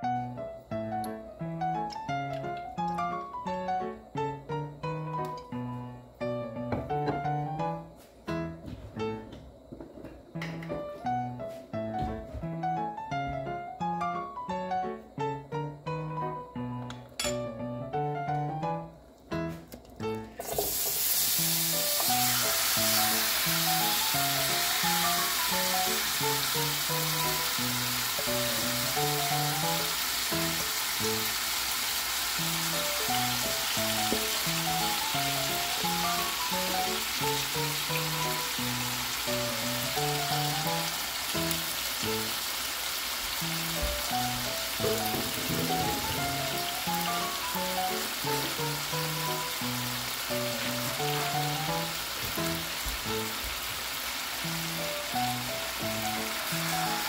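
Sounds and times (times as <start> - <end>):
light background music: 0.0 - 9.6, 10.3 - 31.5, 32.4 - 42.4, 43.4 - 53.6, 54.4 - 57.0
chicken sizzling in hot oil: 20.4 - 57.0.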